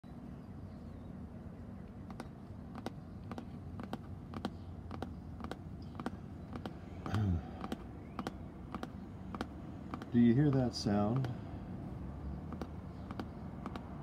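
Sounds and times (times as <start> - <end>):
fingertips tapping on plastic: 2.1 - 11.4, 12.5 - 14.0.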